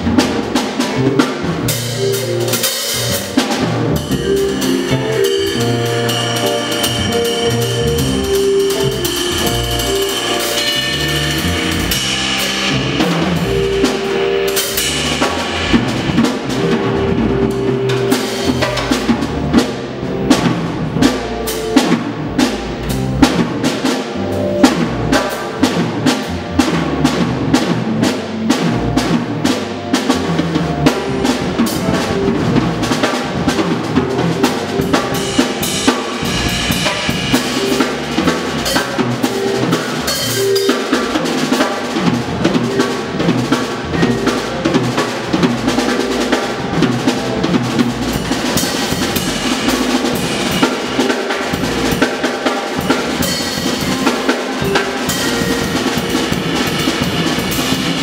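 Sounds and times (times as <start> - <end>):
drum kit played busily: 0.0 - 58.0
jazz group pitched notes: 0.0 - 58.0.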